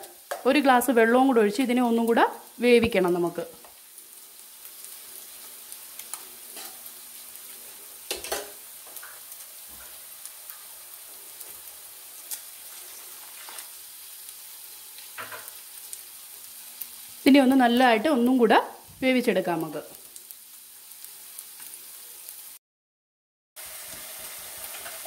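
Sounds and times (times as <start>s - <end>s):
masala sizzling in frying pan: 0.0s - 22.6s, 23.6s - 25.0s
spatula scraping and tapping pan: 6.0s - 6.9s, 8.1s - 10.6s.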